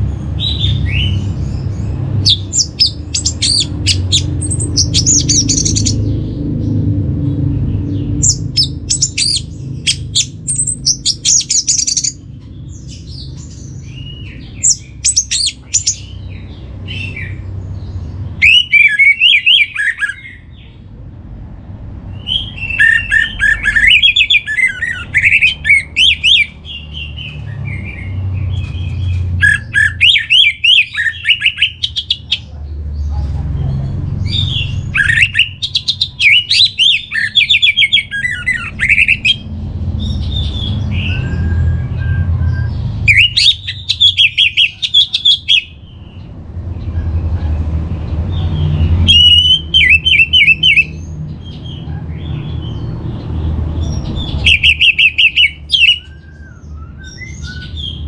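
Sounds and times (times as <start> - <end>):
low rumble: 0.0 - 11.2.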